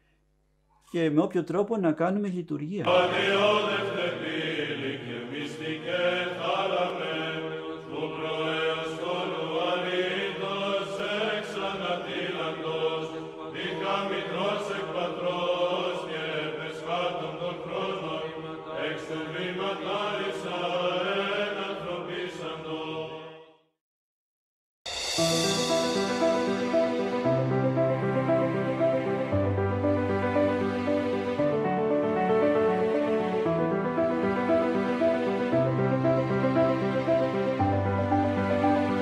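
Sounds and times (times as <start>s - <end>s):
voices chanting slow melody: 2.9s - 23.3s.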